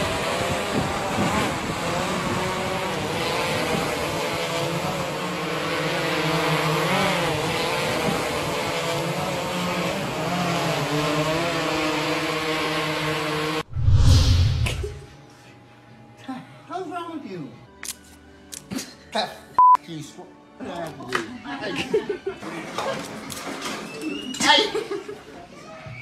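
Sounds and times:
drone propellers humming: 13.3 - 15.2.

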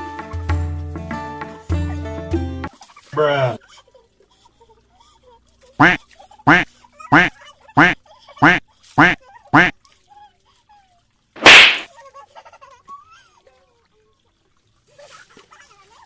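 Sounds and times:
water splash: 11.4 - 11.9.

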